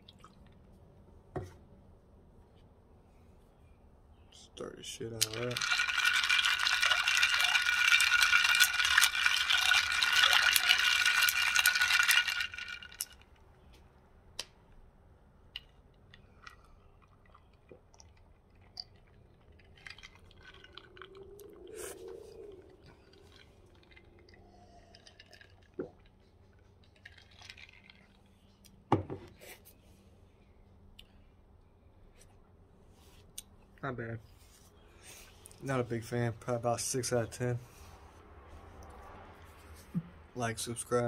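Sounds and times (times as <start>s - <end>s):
stir stick rattling in glass jar: 5.2s - 13.3s, 18.1s - 21.8s, 22.9s - 28.2s
faint swallowing: 20.1s - 26.2s.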